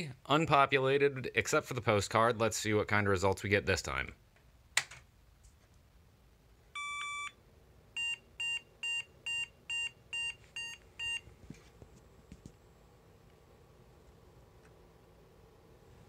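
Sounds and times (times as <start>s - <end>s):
computer speaker beeps: 6.8s - 7.4s.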